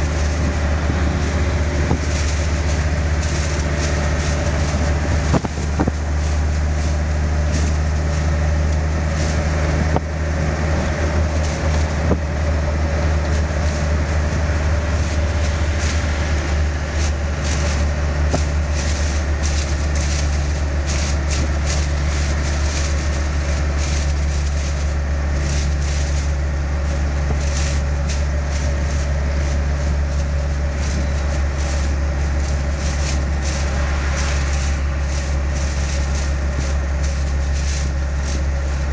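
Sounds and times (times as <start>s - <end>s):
light rattles: 0.0s - 38.9s
truck engine drone: 0.0s - 38.9s.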